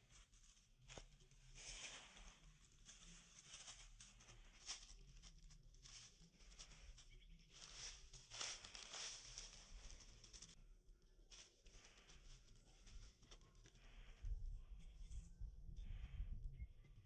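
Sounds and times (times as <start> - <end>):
dry leaves rustling: 0.0 - 10.6, 11.2 - 14.1.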